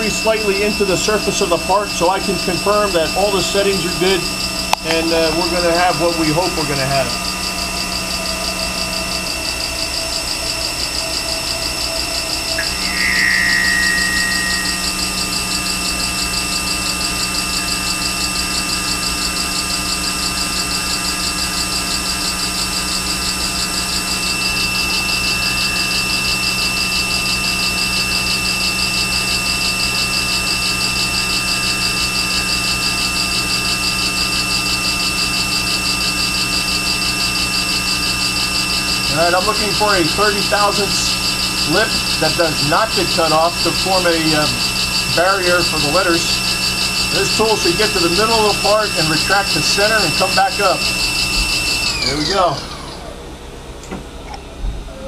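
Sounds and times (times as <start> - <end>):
milling machine humming and whining: 0.0 - 55.0
high-pitched squeal: 12.6 - 16.4.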